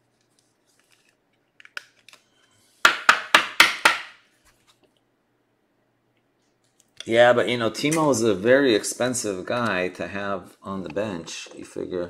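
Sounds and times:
sharp knocks on hard surface: 2.8s - 4.2s.

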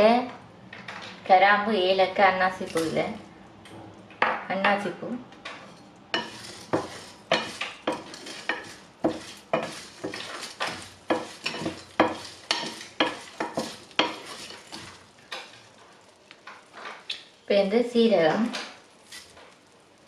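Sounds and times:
wooden spoon scraping a frying pan: 5.5s - 17.1s, 18.9s - 19.8s
seeds rattling in a pan: 6.2s - 17.2s, 18.7s - 20.0s.

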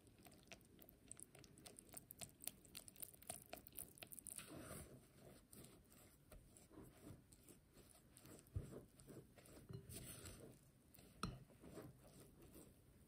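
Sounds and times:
spatula scraping batter in glass bowl: 4.3s - 12.8s.

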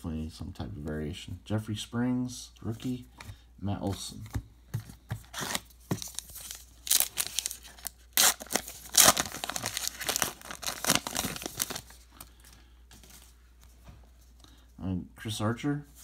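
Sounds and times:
foil wrapper tearing and crinkling: 5.4s - 11.9s.

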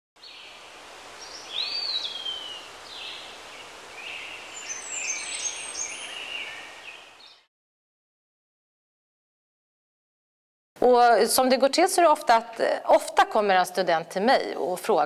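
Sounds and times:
birds chirping: 0.2s - 7.5s
outdoor ambient hiss: 0.2s - 7.5s.

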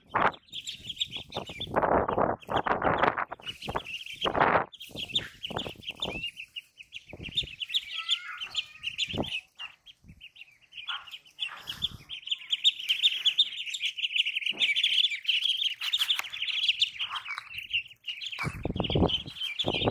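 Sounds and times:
ducklings peeping: 0.0s - 19.9s.

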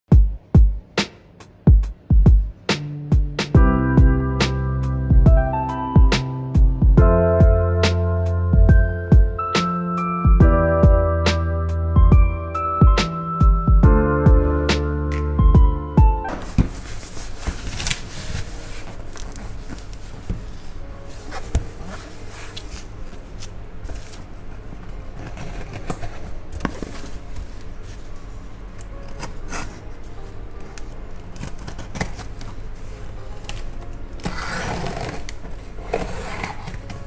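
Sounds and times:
cardboard box knocks and scrapes: 16.3s - 17.8s
knife slitting packing tape: 30.7s - 32.6s.

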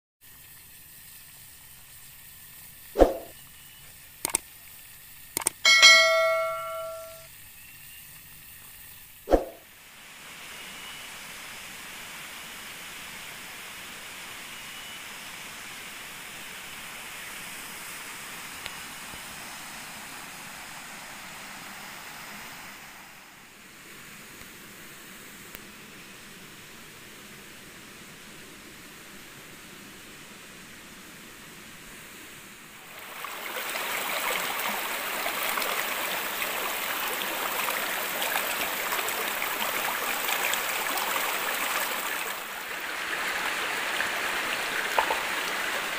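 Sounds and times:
forest ambience hiss: 0.2s - 45.9s
sharp hits: 5.7s - 7.2s
bell-like chime: 5.7s - 7.3s.

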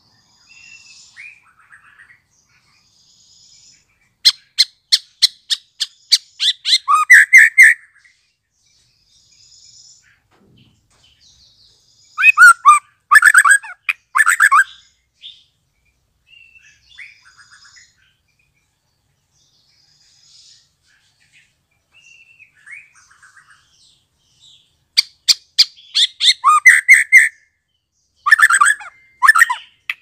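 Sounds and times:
songbird warbling: 4.2s - 8.0s, 12.1s - 15.4s, 25.0s - 27.4s, 28.2s - 30.0s.

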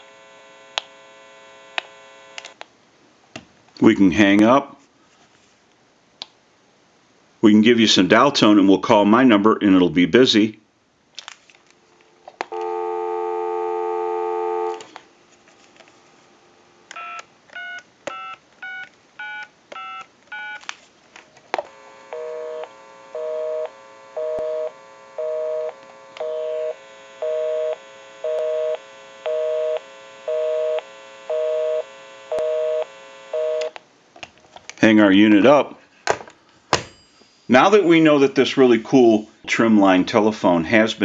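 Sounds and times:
telephone busy signal: 12.5s - 14.9s, 22.1s - 33.8s
telephone dial tone: 12.5s - 15.0s, 16.9s - 20.6s, 21.7s - 33.8s.

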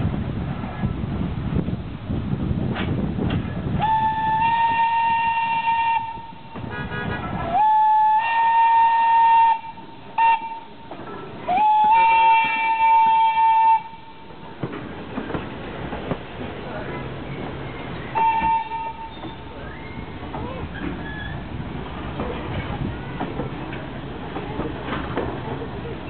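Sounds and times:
low train rumble: 0.0s - 26.0s
train whistle blasts: 3.8s - 10.8s, 11.5s - 14.2s, 18.1s - 20.0s.

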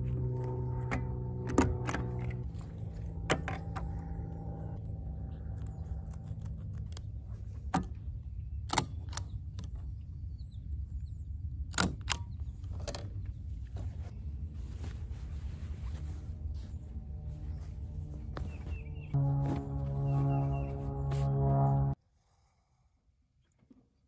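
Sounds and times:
lingering musical tone: 0.0s - 6.6s, 16.2s - 22.0s
steady low rumble: 0.0s - 8.7s, 13.3s - 22.0s.

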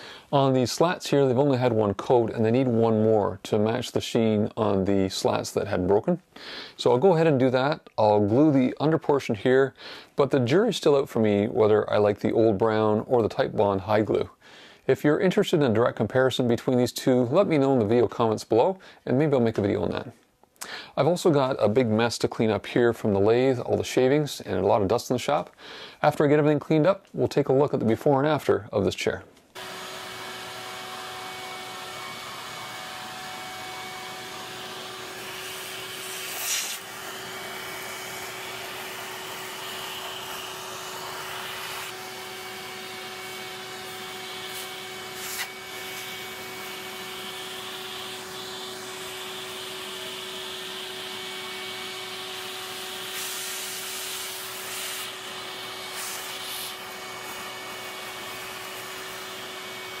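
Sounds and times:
shop vacuum humming: 29.6s - 60.0s.

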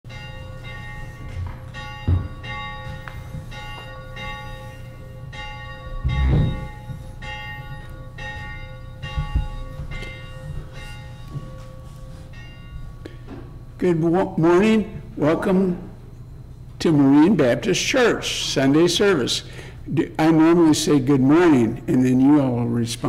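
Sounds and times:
church bells ringing: 0.1s - 13.1s
deep thumps: 6.0s - 6.9s.

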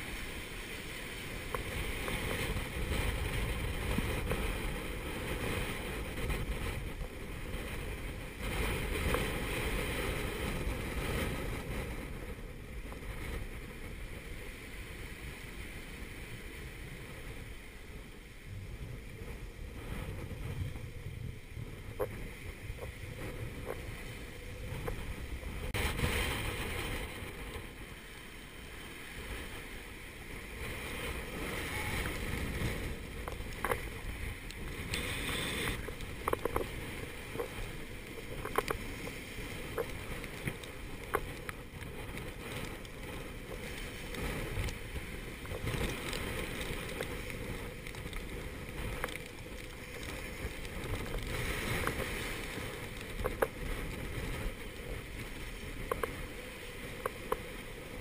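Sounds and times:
wind buffeting microphone: 0.0s - 58.0s
waves rushing past boat: 19.2s - 40.2s.

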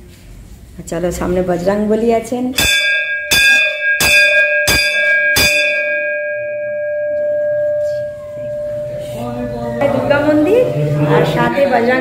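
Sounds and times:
temple bell ringing: 2.6s - 12.0s.

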